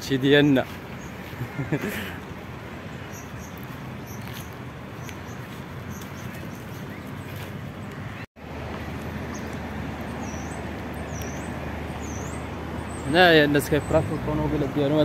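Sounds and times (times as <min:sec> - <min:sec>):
road traffic hum: 0:00.0 - 0:15.0
small bird chirping: 0:02.9 - 0:08.2, 0:09.2 - 0:14.0.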